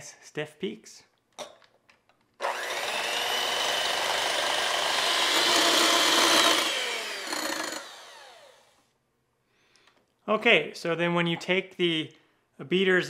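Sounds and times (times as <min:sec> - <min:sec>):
electric hand mixer whirring: 0:02.4 - 0:08.8.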